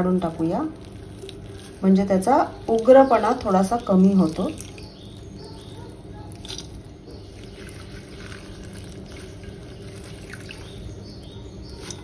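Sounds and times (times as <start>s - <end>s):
low steady hum: 0.0s - 12.0s
water trickling into steel bowl: 0.0s - 12.0s
small water splashes: 7.4s - 10.9s.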